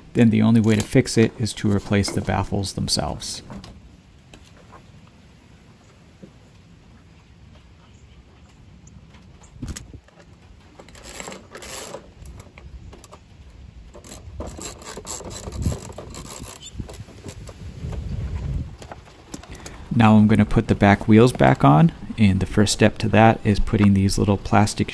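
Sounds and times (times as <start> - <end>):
rasping scrape: 14.0 - 18.4.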